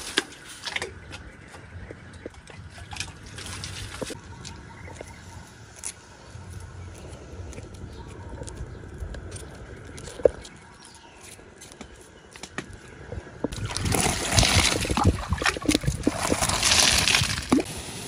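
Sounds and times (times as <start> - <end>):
water splashing over vegetables: 13.5 - 17.7.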